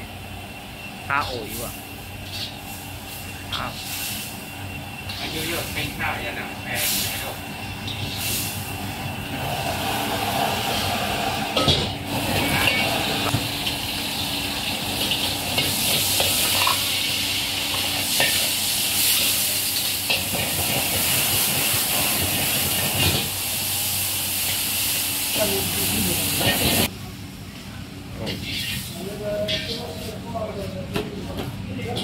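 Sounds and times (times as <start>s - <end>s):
gas burner hissing: 0.0s - 26.9s, 28.1s - 32.0s
food sizzling: 1.2s - 26.9s
metal spatula scraping wok: 2.2s - 2.8s, 5.0s - 5.9s, 7.8s - 8.6s, 28.2s - 30.1s.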